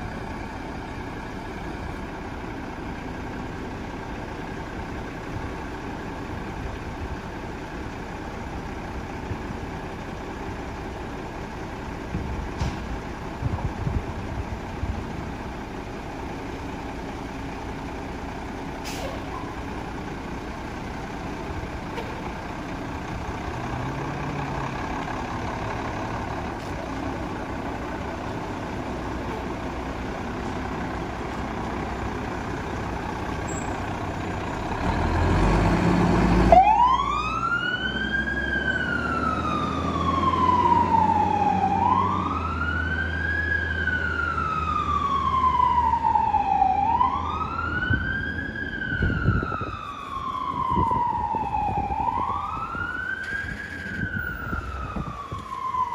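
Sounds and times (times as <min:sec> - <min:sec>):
diesel engine running: 0:00.0 - 0:55.9
fire engine siren wailing: 0:21.9 - 0:55.9.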